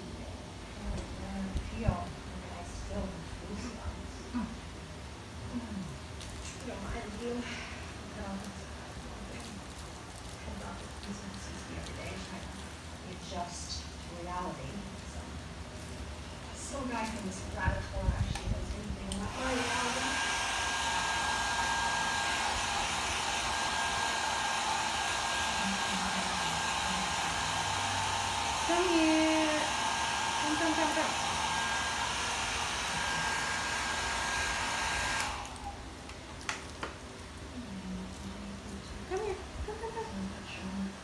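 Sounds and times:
hair dryer blowing with whine: 0:16.6 - 0:35.9.

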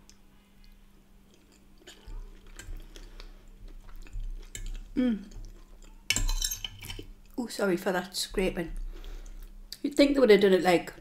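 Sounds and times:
close chewing mouth sounds: 0:00.0 - 0:06.1.

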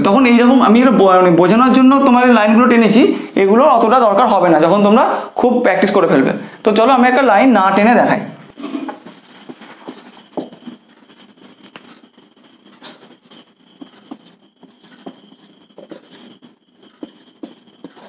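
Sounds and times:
marker pen writing on whiteboard: 0:08.5 - 0:18.0.

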